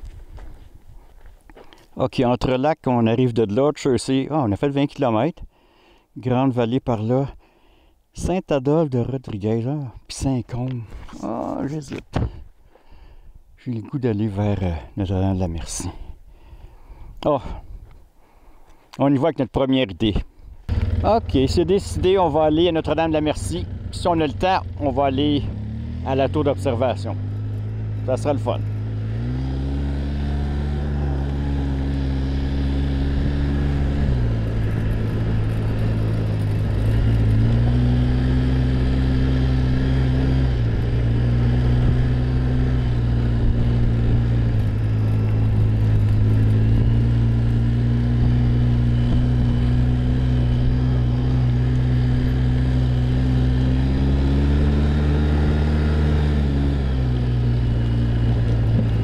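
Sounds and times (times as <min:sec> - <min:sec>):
quad bike engine running: 0:20.7 - 0:59.0.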